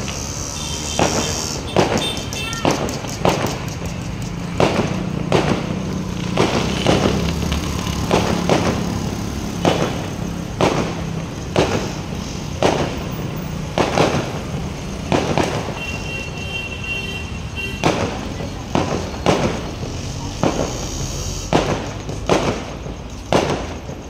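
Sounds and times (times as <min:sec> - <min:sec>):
fireworks bangs: 0:00.0 - 0:24.0.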